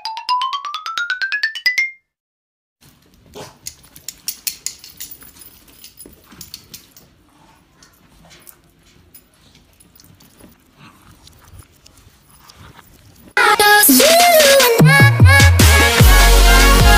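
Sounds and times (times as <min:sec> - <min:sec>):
sharp clicks and jingles: 0:03.7 - 0:07.2, 0:07.8 - 0:13.4.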